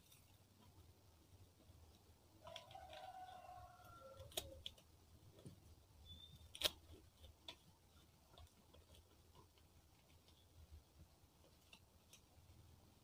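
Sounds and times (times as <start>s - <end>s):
leaf crackling: 2.4s - 10.4s.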